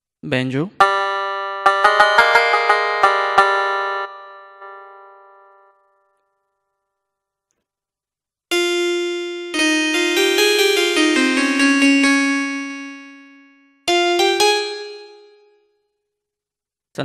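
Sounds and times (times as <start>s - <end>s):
electronic keyboard notes: 0.8s - 6.3s, 8.5s - 15.7s.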